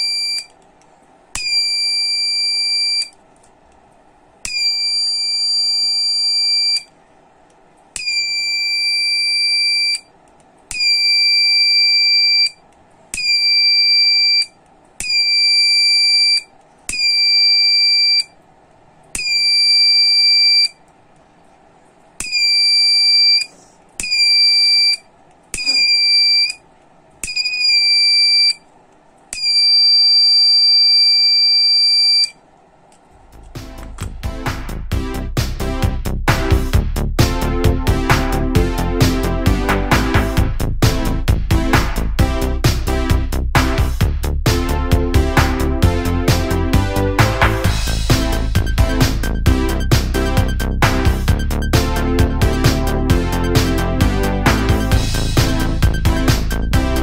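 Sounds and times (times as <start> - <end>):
high-pitched alarm buzzer: 13.2 - 18.3, 22.2 - 25.0, 25.6 - 26.6.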